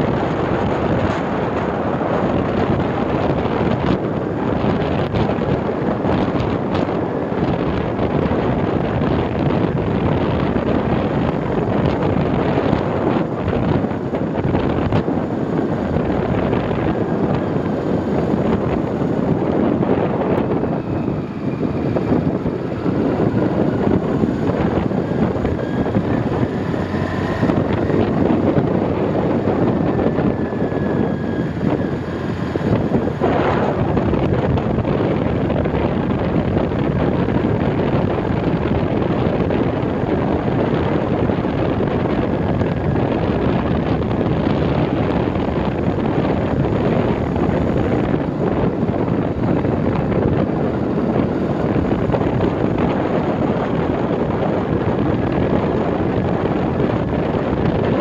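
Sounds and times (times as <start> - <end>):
vehicle engine running: 0.0 - 58.0
wind rushing over microphone: 0.0 - 58.0.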